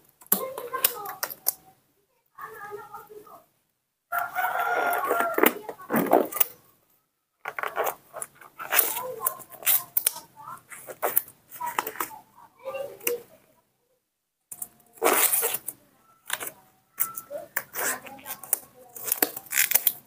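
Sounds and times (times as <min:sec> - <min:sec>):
rubber gloves rustling and snapping: 0:07.4 - 0:12.2, 0:15.0 - 0:20.0.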